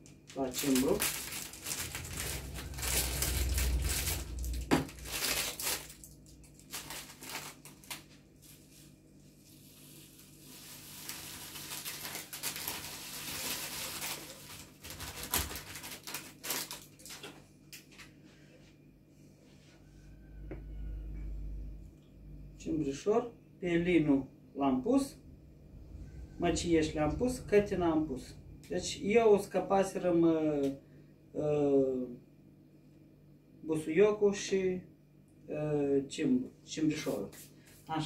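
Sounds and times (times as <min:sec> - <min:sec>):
plastic bag crinkling: 0:00.0 - 0:08.8, 0:09.5 - 0:17.4
dry herb crackling into glass jar: 0:00.4 - 0:08.0, 0:10.2 - 0:17.2.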